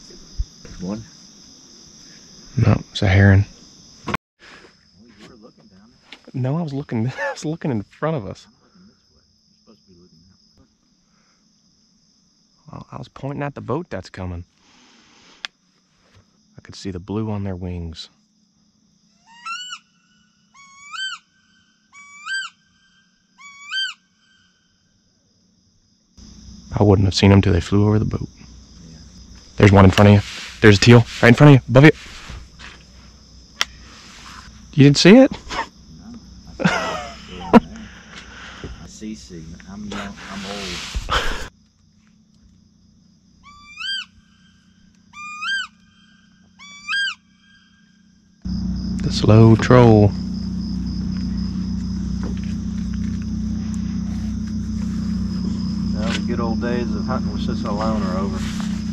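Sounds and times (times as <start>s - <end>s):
bird calling: 19.2s - 24.8s, 43.4s - 48.1s.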